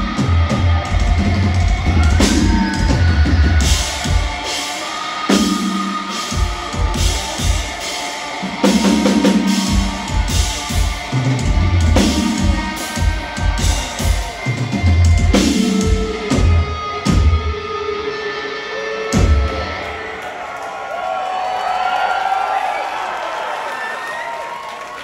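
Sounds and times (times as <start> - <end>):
drum kit pounding: 0.0 - 17.6, 19.2 - 20.1
heavy distorted guitars chugging: 0.0 - 20.2.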